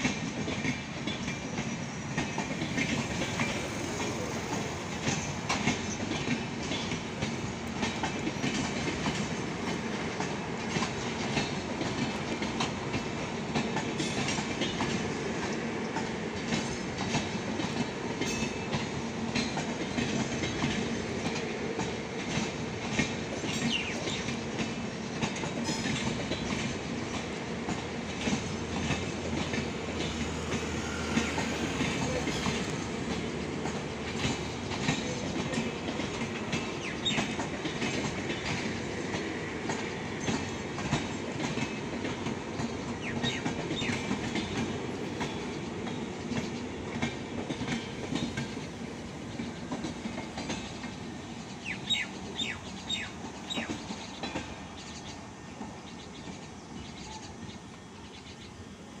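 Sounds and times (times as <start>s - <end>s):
wheels clicking over rail joints: 0.0s - 58.4s
train wheels rumbling: 0.0s - 59.0s
high wheel squeaks: 29.9s - 33.3s.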